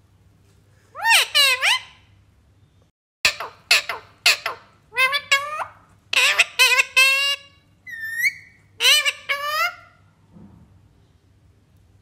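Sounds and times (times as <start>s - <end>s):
parakeet squawking: 1.0s - 2.1s, 3.2s - 10.0s.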